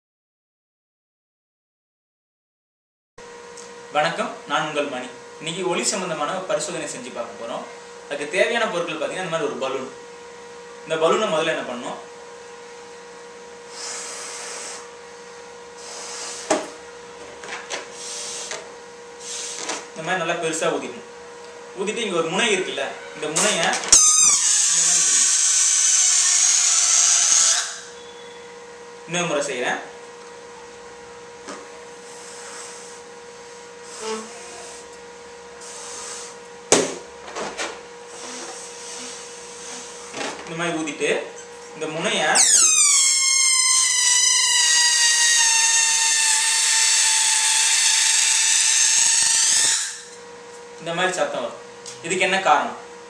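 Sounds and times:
faint electrical hum: 3.3s - 53.0s
breath blown into balloon: 13.6s - 15.0s, 15.8s - 16.7s, 17.9s - 18.6s, 19.2s - 19.7s, 32.0s - 34.9s, 35.6s - 36.4s, 38.1s - 40.1s
balloon being blown up by mouth: 15.8s - 16.8s, 19.2s - 19.7s, 23.9s - 27.9s, 42.4s - 50.2s.

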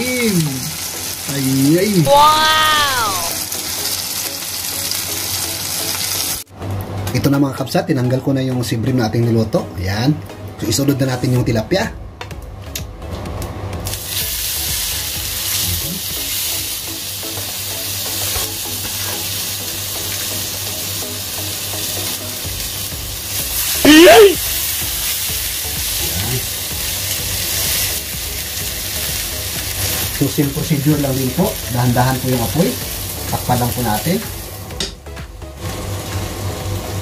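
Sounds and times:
fish sizzling on grill pan: 0.0s - 6.5s, 13.8s - 34.8s, 35.6s - 37.0s.

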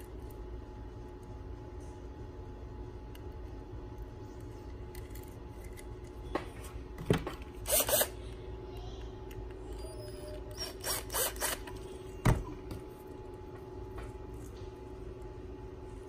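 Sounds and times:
steady low hum: 0.0s - 16.0s
screwdriver turning metal screws: 7.7s - 8.1s, 10.6s - 11.7s.

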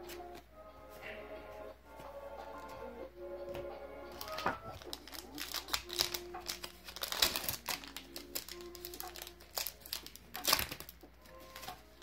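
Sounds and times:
foil wrapper crinkling: 4.1s - 12.0s.

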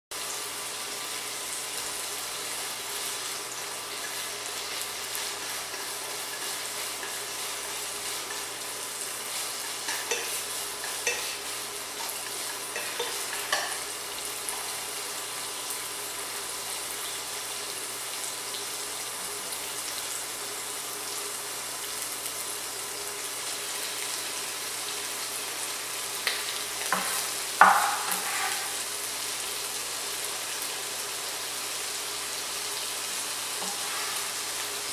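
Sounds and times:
tofu sizzling in hot oil: 0.2s - 34.9s.

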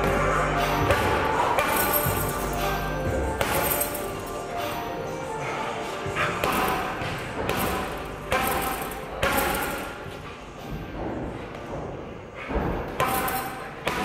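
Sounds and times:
punches thudding on heavy bag: 6.4s - 10.0s.

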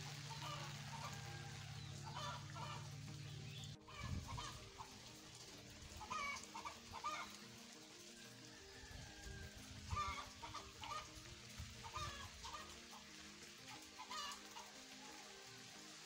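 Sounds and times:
soft background music: 0.0s - 16.0s
chickens clucking: 0.3s - 4.9s, 6.0s - 7.4s, 9.9s - 11.2s, 11.8s - 13.0s, 14.0s - 15.1s.

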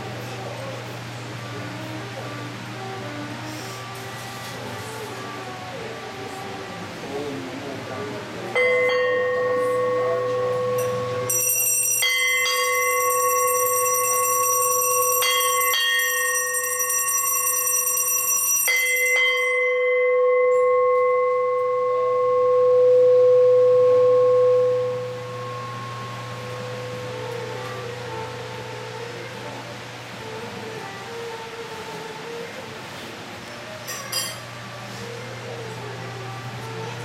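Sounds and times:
higher bright bell ringing: 8.6s - 22.2s
deep bell ringing: 8.6s - 27.4s.

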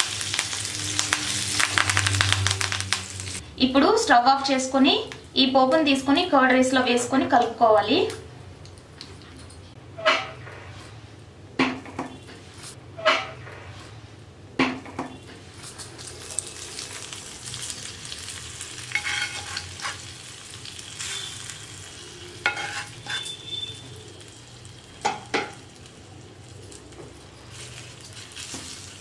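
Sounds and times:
spices sizzling and crackling in ghee: 0.0s - 3.4s, 15.6s - 29.0s.

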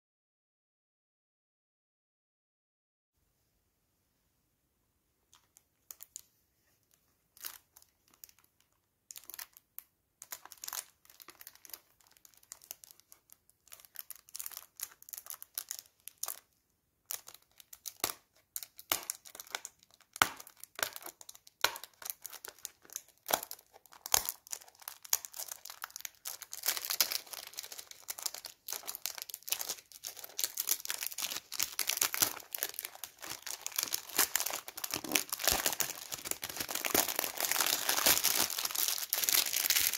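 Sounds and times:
cellophane wrap crinkling and tearing: 7.3s - 16.5s, 17.1s - 39.9s.

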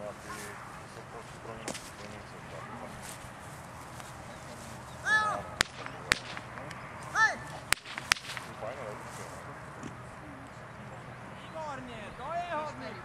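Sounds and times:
whip cracking: 5.5s - 8.6s.

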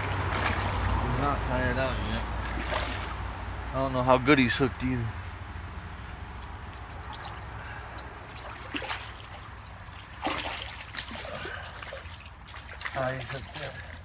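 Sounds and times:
fish thrashing splashes: 0.0s - 1.0s, 2.4s - 3.2s, 6.9s - 14.0s
water splashing and trickling: 0.0s - 3.6s, 6.1s - 14.0s.

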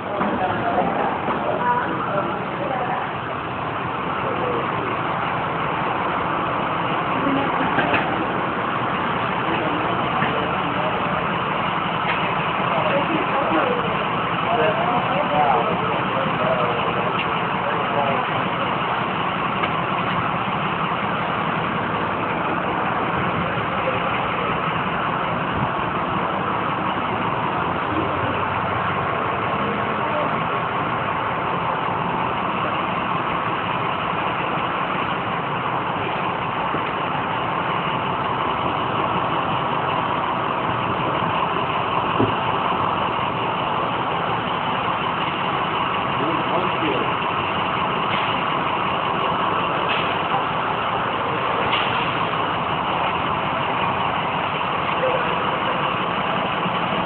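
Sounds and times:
engine-like mechanical noise: 0.0s - 57.0s.

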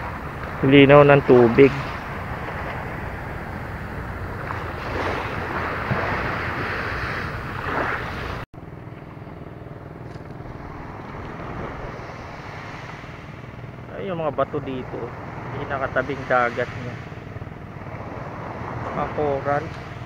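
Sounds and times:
wind on microphone: 0.0s - 8.4s, 10.2s - 13.9s
small waves washing on shore: 0.0s - 9.2s, 10.0s - 20.0s.

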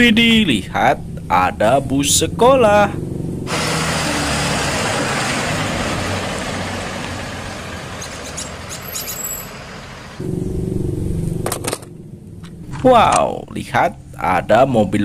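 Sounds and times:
bus pulling away: 1.1s - 13.0s.

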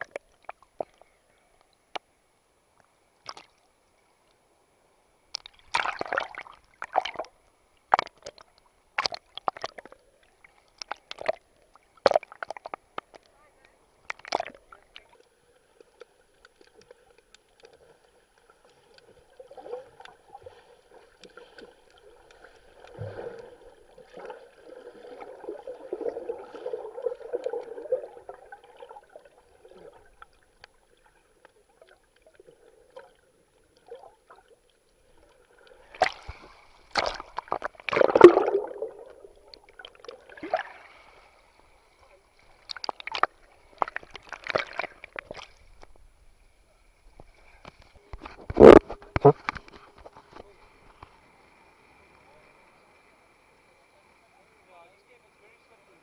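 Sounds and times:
water sloshing and gurgling: 3.2s - 3.7s, 5.3s - 13.4s, 14.0s - 52.6s
muffled underwater bubbling: 19.2s - 30.3s, 37.0s - 40.8s, 48.2s - 49.5s
loud water splashes: 36.9s - 39.0s.

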